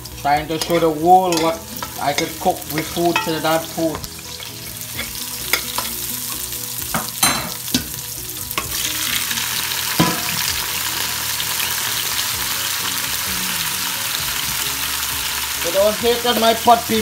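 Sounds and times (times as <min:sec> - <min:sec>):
vegetables sizzling in oil: 0:00.0 - 0:17.0
utensil knocking and scraping pot: 0:00.5 - 0:04.1.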